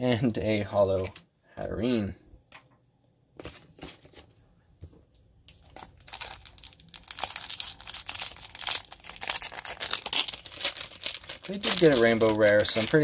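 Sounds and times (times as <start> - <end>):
foil wrapper crinkling and tearing: 5.5 - 13.0.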